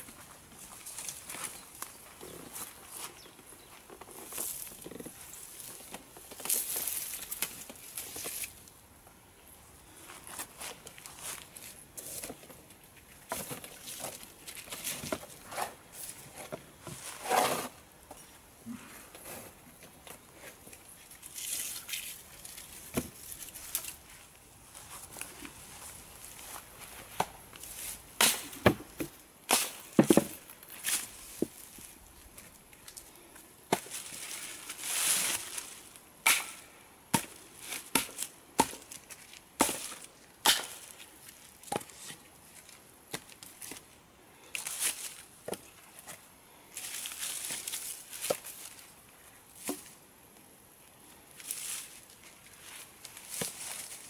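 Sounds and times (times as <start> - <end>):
wood brushing through dry leaves: 0.1 - 8.8, 10.0 - 17.8, 19.2 - 28.7, 33.7 - 36.6, 44.6 - 48.9, 51.4 - 54.0
wood logs knocking together: 29.8 - 30.4.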